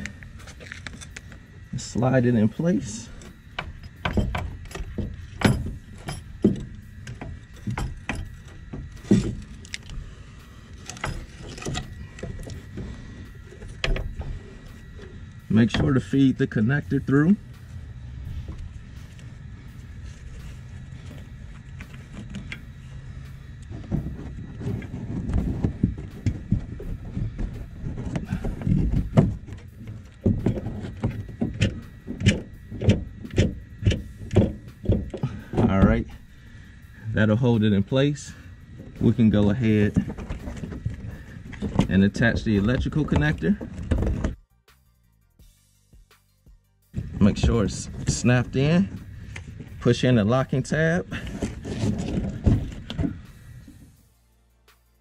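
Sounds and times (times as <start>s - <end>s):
metal knocking and clunking: 3.1s - 10.0s, 10.8s - 16.1s, 20.3s - 36.4s, 38.8s - 44.4s, 51.1s - 53.8s.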